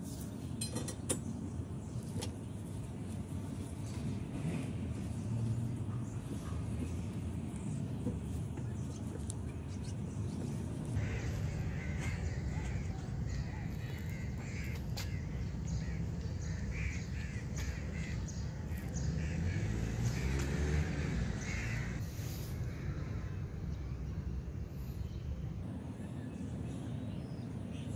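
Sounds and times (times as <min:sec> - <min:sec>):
steady low rumble: 0:01.4 - 0:19.6
crows cawing: 0:11.0 - 0:19.7, 0:21.4 - 0:22.0.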